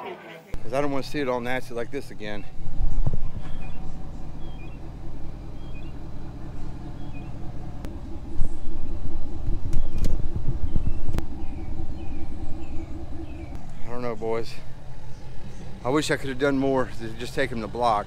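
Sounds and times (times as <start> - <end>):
pickup truck engine idling: 0.5 - 18.0
low rumble: 0.6 - 18.0
sharp clicks: 9.4 - 11.3.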